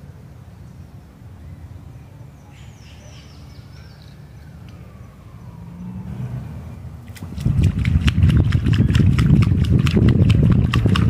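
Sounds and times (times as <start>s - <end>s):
distant road traffic rumble: 0.0s - 11.0s
faint siren-like wail: 4.0s - 7.0s.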